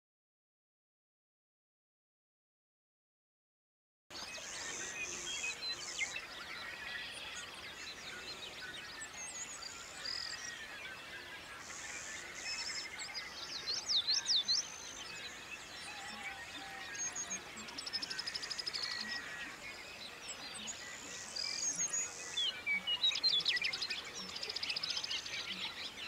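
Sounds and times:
birds singing and calling: 4.1s - 26.0s.

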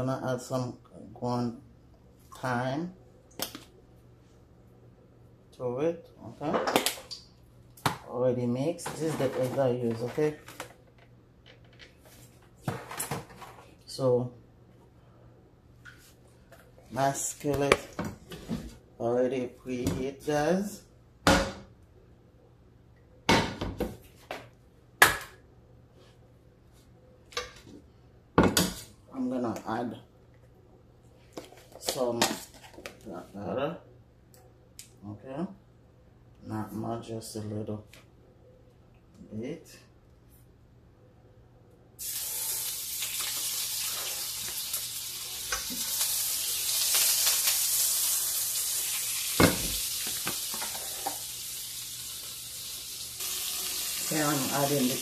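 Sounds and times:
food sizzling in a skillet: 42.0s - 55.0s.

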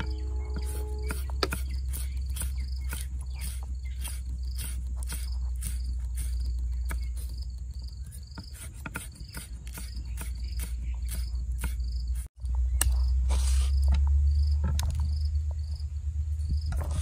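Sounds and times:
high insect chirp: 0.0s - 12.3s, 13.1s - 16.8s
knife chopping on wooden board: 0.6s - 5.8s, 8.3s - 11.8s.

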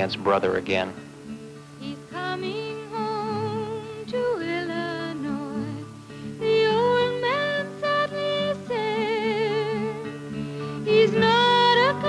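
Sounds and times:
low accompanying notes: 0.0s - 1.4s
slow melody with vibrato: 0.0s - 12.0s.

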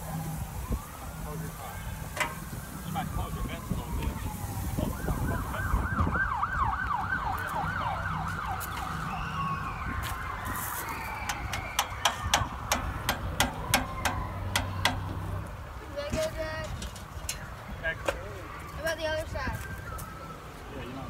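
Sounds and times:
siren yelping: 0.2s - 12.7s.

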